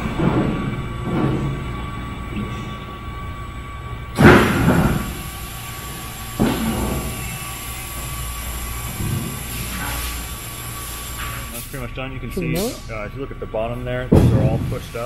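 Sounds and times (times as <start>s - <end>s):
hydraulic press humming: 0.0s - 15.0s
hydraulic hiss: 4.1s - 11.9s.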